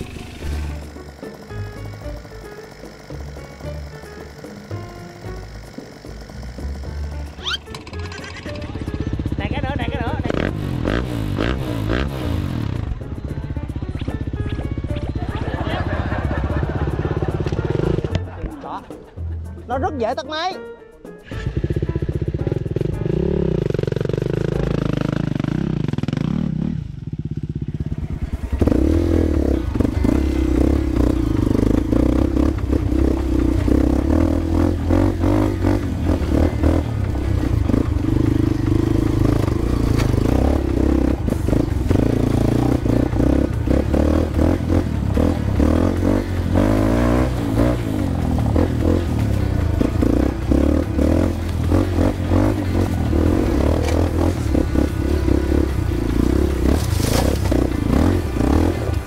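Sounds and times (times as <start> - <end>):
dirt bike engine under load: 0.0 - 9.4, 28.2 - 59.0
background music: 0.0 - 59.0.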